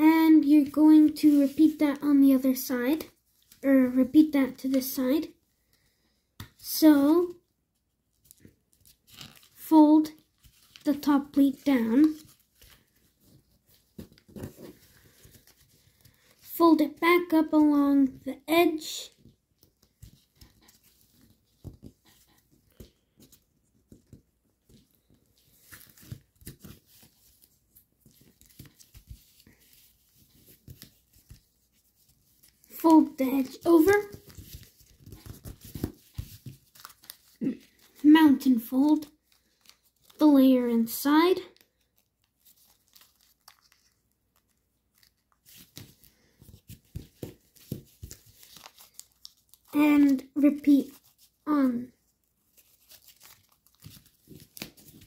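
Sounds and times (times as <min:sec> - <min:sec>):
foil paper crinkling: 0:24.6 - 0:38.1, 0:38.9 - 0:40.2, 0:41.5 - 0:51.4, 0:52.4 - 0:55.0.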